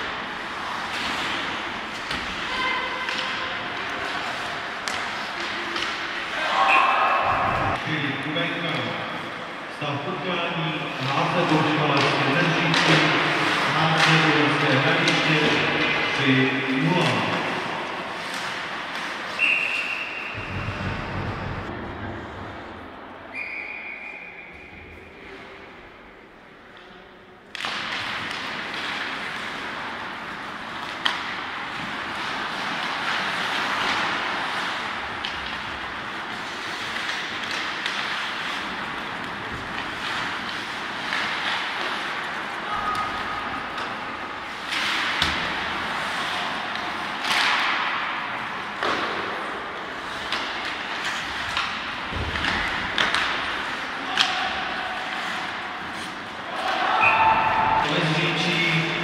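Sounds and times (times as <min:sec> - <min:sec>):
hockey sticks and puck cracking: 0:00.0 - 0:08.0, 0:10.8 - 0:21.7, 0:26.7 - 0:59.0
skate blades scraping ice: 0:10.9 - 0:21.6, 0:27.6 - 0:56.8.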